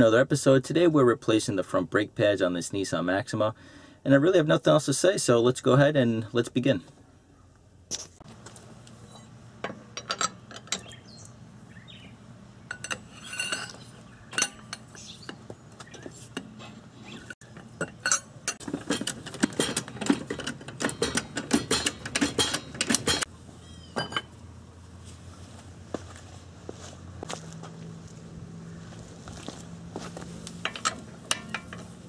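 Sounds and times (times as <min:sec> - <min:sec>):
hand tools clicking on lug nuts: 0:17.4 - 0:23.3, 0:30.6 - 0:32.0.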